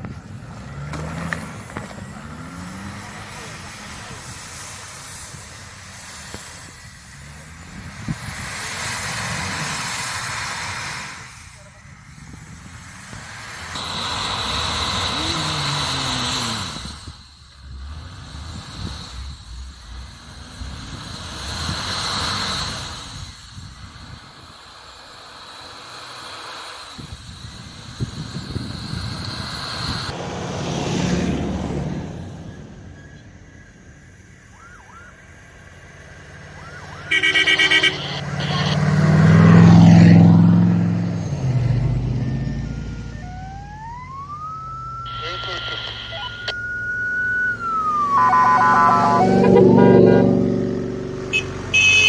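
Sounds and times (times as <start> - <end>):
engine working under load: 0.0 - 52.0
tyres churning in snow: 0.0 - 52.0
rushing hiss: 0.8 - 30.1.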